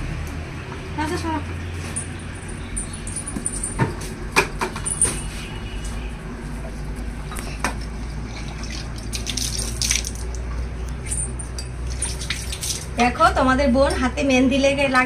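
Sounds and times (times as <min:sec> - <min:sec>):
water splashing: 0:08.0 - 0:10.5, 0:11.8 - 0:13.0.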